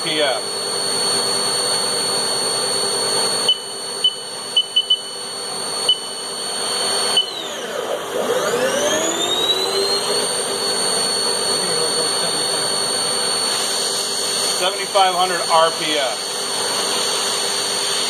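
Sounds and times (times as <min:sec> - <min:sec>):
spindle high-pitched whine: 0:00.0 - 0:18.0
short high beeps: 0:03.5 - 0:05.1.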